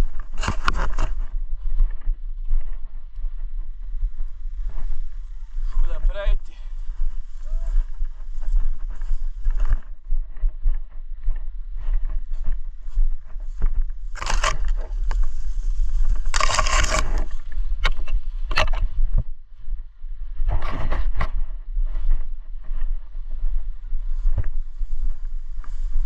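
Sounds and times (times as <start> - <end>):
undergrowth rustling against clothing: 0.0 - 19.1
microphone handling rumble: 0.0 - 26.0.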